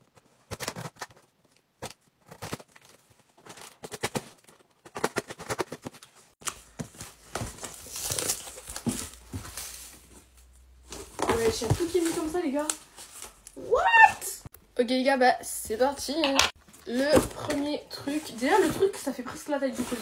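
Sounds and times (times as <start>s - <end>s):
cardboard rustling and tearing: 0.1s - 10.1s, 16.9s - 20.0s.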